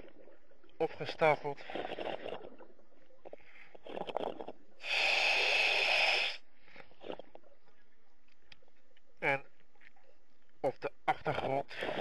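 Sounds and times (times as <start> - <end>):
diver breathing through regulator: 4.8 - 6.5.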